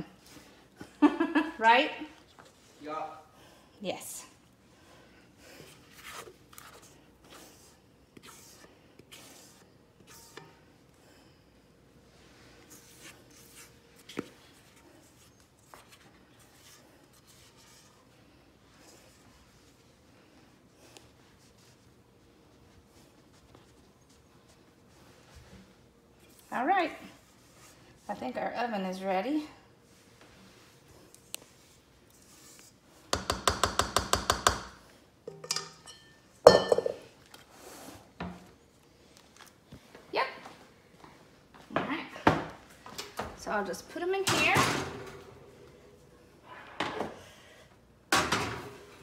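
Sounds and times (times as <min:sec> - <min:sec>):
spatula scraping a metal bowl: 0:06.0 - 0:10.6
metal bowl clanging: 0:35.3 - 0:37.1
metal kitchenware clinking: 0:35.3 - 0:37.1.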